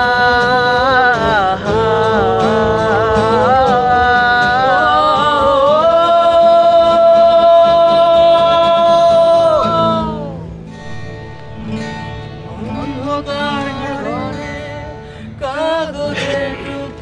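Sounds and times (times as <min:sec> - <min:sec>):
man singing: 0:00.0 - 0:10.6, 0:12.5 - 0:17.0
strummed acoustic guitar: 0:00.0 - 0:17.0.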